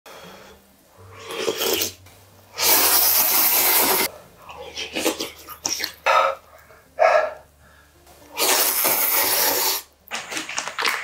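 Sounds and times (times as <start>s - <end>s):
person slurping noodles: 1.1s - 6.0s, 8.3s - 9.9s
soft mouth noises: 1.1s - 6.8s, 8.3s - 9.9s.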